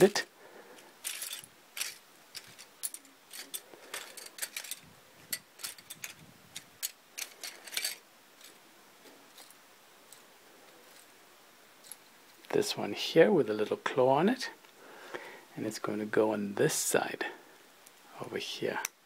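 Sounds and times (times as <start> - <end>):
plastic bricks clattering: 0.8 - 8.6.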